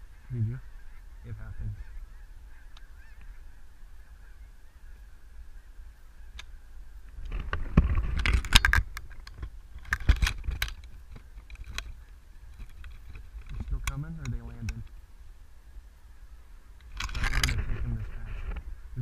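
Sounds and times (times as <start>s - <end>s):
geese honking: 0.0s - 7.1s.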